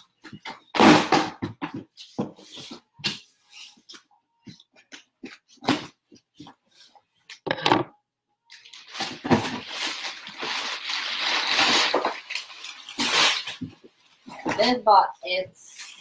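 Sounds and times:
packing rustling and crinkling: 8.6s - 14.8s.

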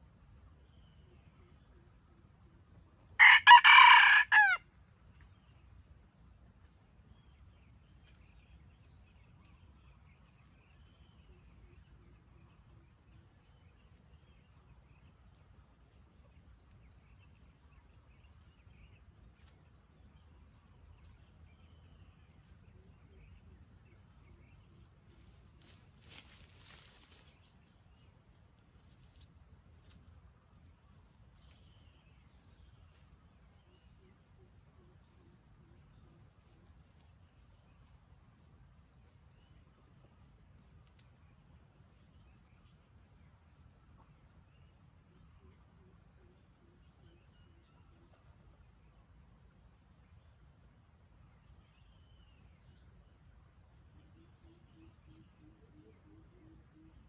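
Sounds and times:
rooster crowing: 3.2s - 4.6s.

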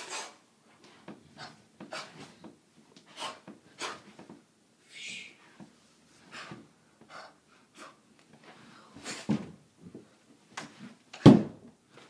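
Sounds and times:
foot stamp thump: 11.2s - 11.7s.

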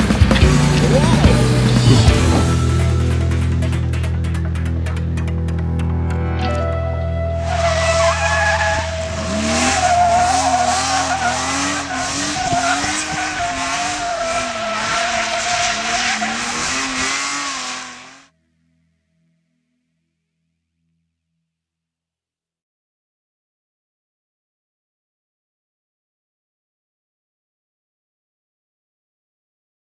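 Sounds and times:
background music: 0.0s - 13.3s
car engine revving: 0.0s - 18.3s
tyres squealing in a drift: 7.4s - 18.2s.

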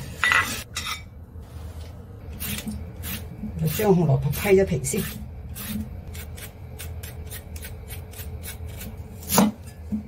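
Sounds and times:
peeler scraping carrot: 2.3s - 9.5s.

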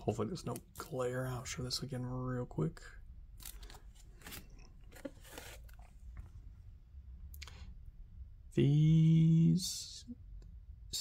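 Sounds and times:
paper rustling: 3.4s - 6.3s
man's voice holding a note: 8.5s - 10.1s.

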